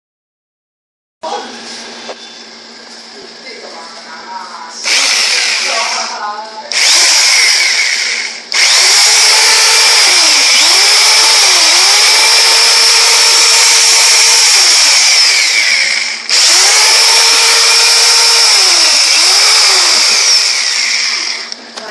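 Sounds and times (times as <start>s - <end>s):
jigsaw motor running: 4.8s - 6.1s, 6.7s - 21.6s.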